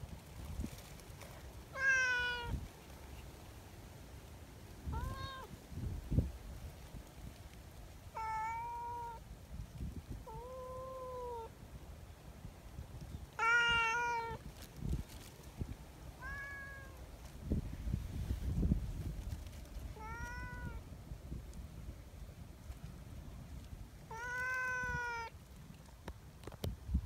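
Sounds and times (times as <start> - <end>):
rustling: 0.0 - 9.0, 13.0 - 21.7
cat meowing: 1.8 - 2.6, 4.9 - 5.5, 8.2 - 9.2, 10.3 - 11.5, 13.4 - 14.4, 16.2 - 17.0, 20.0 - 20.8, 24.1 - 25.3.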